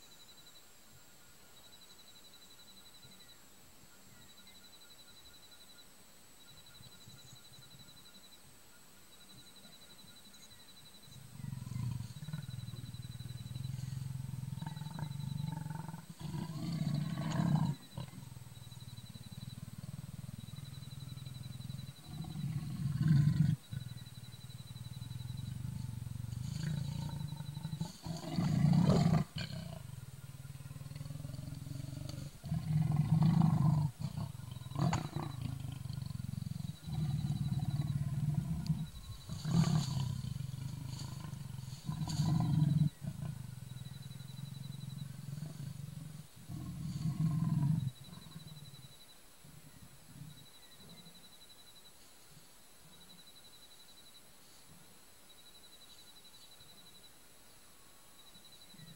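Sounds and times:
leopard growling: 9.6 - 51.4.

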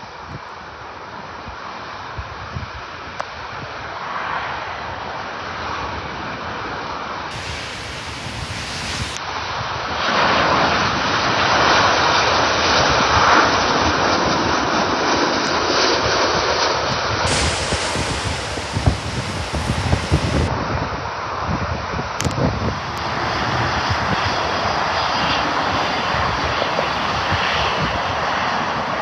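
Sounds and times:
jet airliner passing overhead: 2.8 - 29.0
wind buffeting microphone: 7.3 - 9.2, 15.5 - 29.0.

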